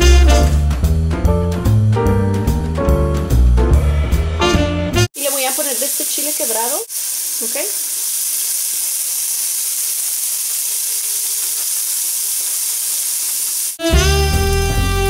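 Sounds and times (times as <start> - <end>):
music: 0.0 - 5.1, 13.8 - 15.0
vegetables sizzling in butter: 5.2 - 15.0.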